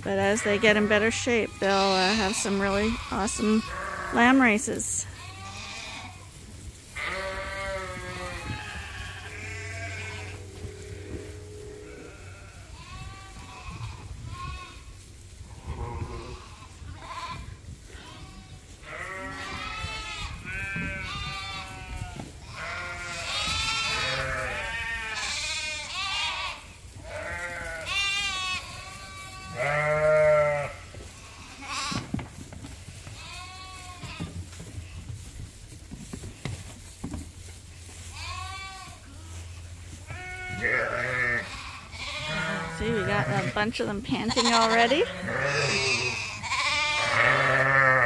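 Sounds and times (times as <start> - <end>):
sheep bleating: 0.2 - 6.2, 7.0 - 14.8, 15.7 - 32.0, 40.1 - 48.0.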